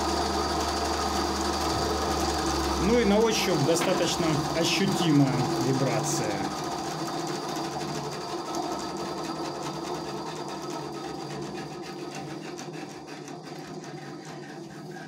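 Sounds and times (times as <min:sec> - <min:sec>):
band saw running idle: 0:00.0 - 0:15.0.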